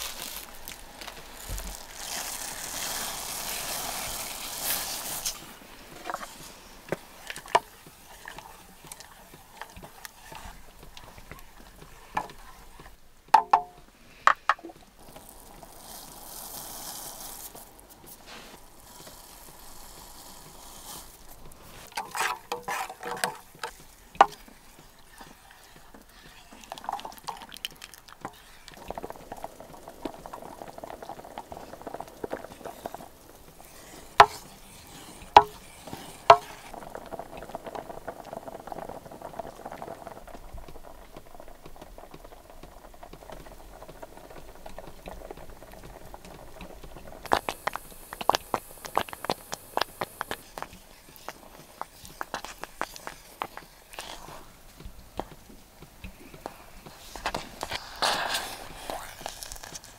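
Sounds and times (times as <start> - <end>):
spoon stirring thick porridge: 0.0 - 39.8, 44.4 - 59.9
porridge bubbling in a pot: 0.0 - 59.9
spoon knocking against pot: 13.4 - 14.7.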